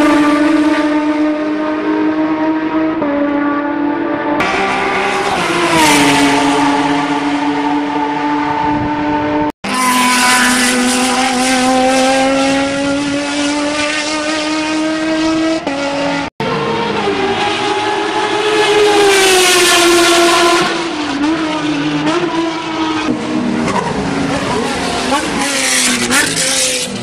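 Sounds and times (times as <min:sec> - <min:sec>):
race car engine at high revs: 0:00.0 - 0:27.0.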